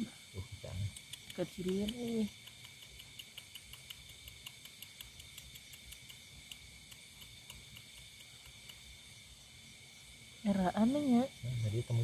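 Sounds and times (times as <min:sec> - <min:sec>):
insects trilling: 0:00.0 - 0:12.0
faint regular ticks: 0:00.5 - 0:09.2.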